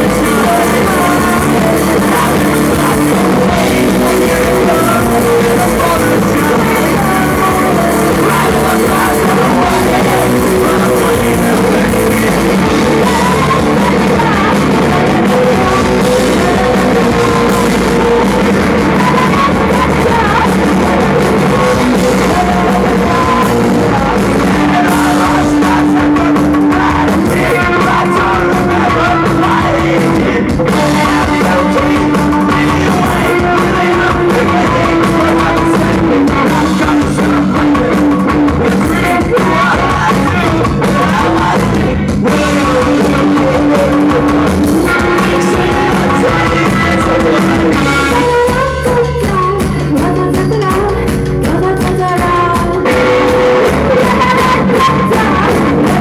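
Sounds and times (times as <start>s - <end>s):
drums: 0.0s - 56.0s
electric guitars: 0.0s - 56.0s
person singing: 0.0s - 56.0s.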